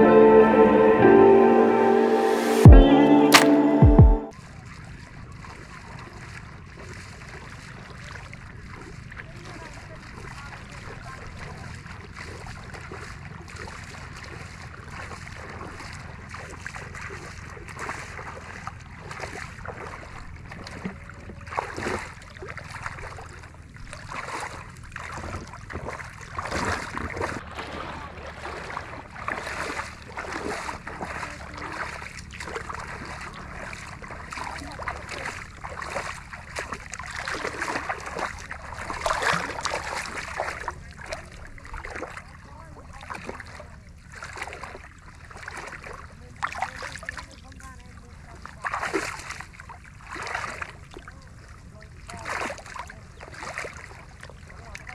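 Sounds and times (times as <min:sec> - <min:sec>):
water sloshing and splashing: 0:04.3 - 0:54.9
steady low rumble: 0:27.2 - 0:36.9.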